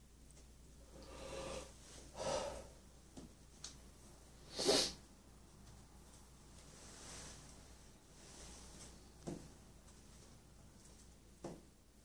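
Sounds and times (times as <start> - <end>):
breathy puffs of air: 0.9 - 2.8.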